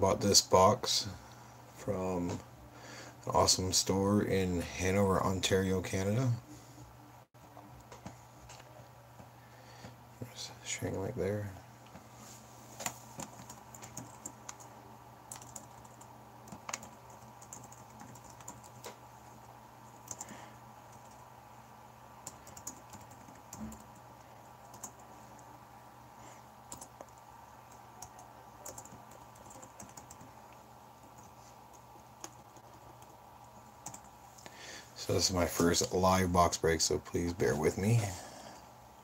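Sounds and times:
low steady hum: 0.0 - 39.0
computer keyboard typing: 12.8 - 14.7, 15.3 - 19.0, 20.0 - 21.2, 22.2 - 25.1, 26.7 - 30.4, 31.0 - 33.2, 33.8 - 34.1.

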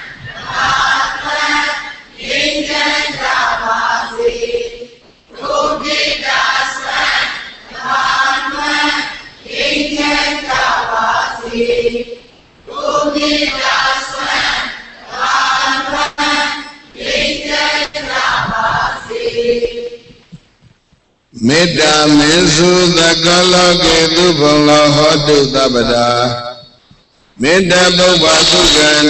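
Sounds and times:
monk chanting into a microphone: 21.4 - 26.8, 27.4 - 29.0.

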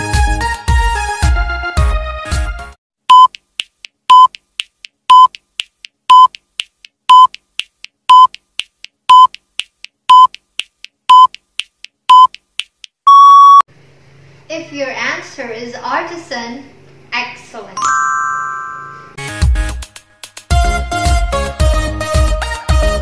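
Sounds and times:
countdown timer beeps: 3.1 - 3.3, 4.1 - 4.4, 5.1 - 5.4, 6.1 - 6.4, 7.1 - 7.4, 8.1 - 8.4, 9.1 - 9.4, 10.1 - 10.4, 11.1 - 11.3, 12.1 - 12.3, 13.1 - 13.6
background music: 19.2 - 23.0.

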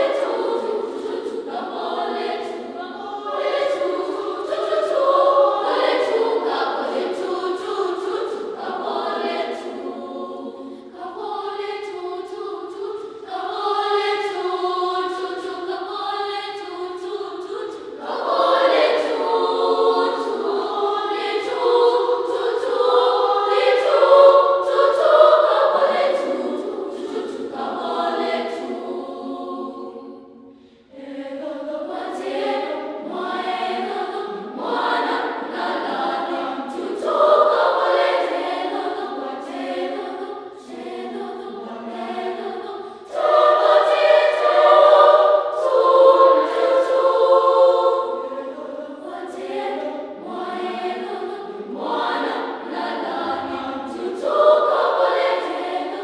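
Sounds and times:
school choir singing unaccompanied: 0.0 - 56.0.

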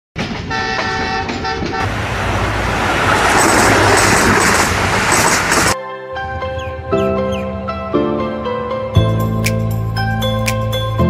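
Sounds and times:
multi-tone horn blasts: 0.5 - 2.8
loud rushing noise with rumble: 1.8 - 5.8.

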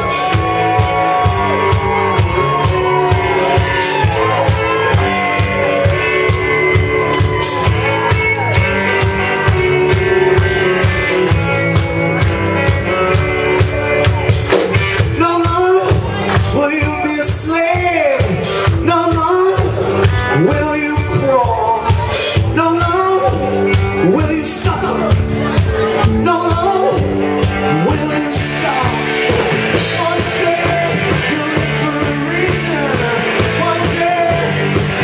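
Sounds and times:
rock band playing: 0.0 - 35.0
man singing: 12.6 - 35.0.

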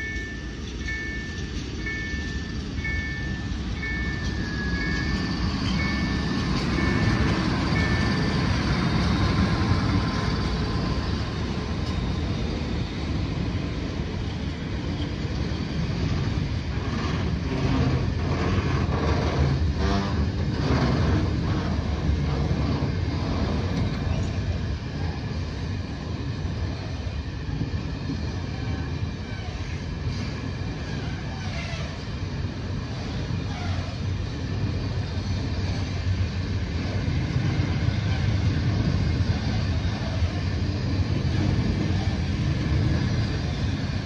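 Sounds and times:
level-crossing warning bell: 0.0 - 13.6
freight train rumbling past: 0.0 - 44.0.

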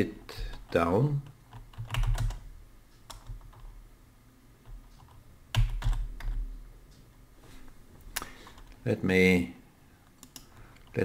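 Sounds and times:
computer keyboard typing: 0.4 - 3.8, 4.6 - 6.5, 10.2 - 11.0.

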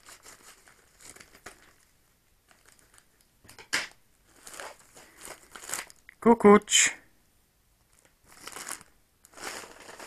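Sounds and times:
paper envelope crinkling: 0.0 - 3.2, 4.2 - 6.1, 7.9 - 10.0.

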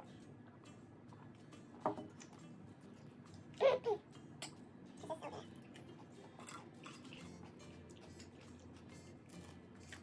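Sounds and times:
mouth clicks and chewing: 5.6 - 10.0.

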